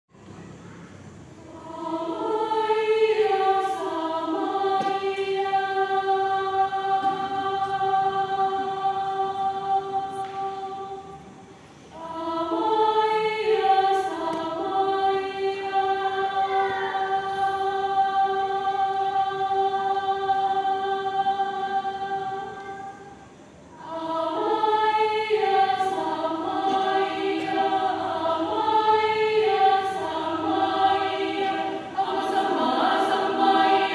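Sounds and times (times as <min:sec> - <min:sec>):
mixed choir singing unaccompanied: 0:01.2 - 0:33.9.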